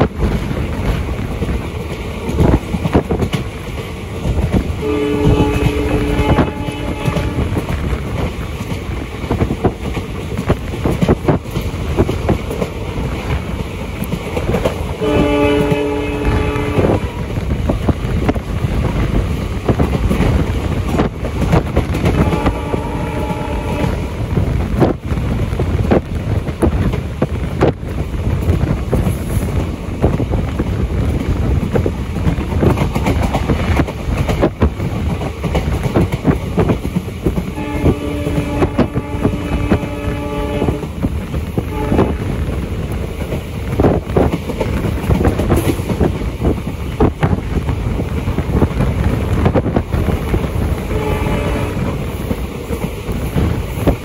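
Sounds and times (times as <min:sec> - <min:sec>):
train rumble and wind: 0:00.0 - 0:54.0
locomotive horn: 0:04.8 - 0:07.7, 0:15.0 - 0:17.2, 0:22.1 - 0:24.1, 0:37.5 - 0:41.0, 0:41.7 - 0:42.4, 0:50.8 - 0:52.0
wheels clacking over rail joints: 0:24.4 - 0:54.0.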